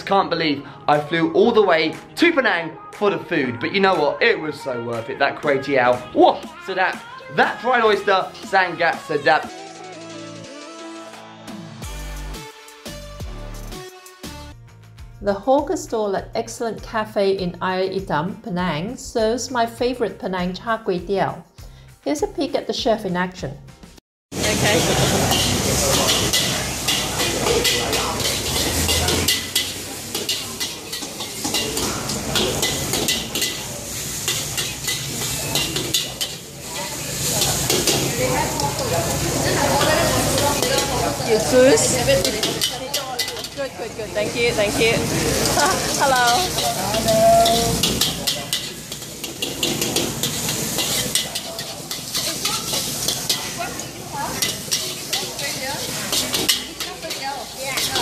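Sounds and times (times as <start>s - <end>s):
food sizzling in a wok: 24.3s - 58.0s
metal spatula clanking on wok: 25.0s - 38.2s, 39.7s - 43.7s, 45.4s - 58.0s.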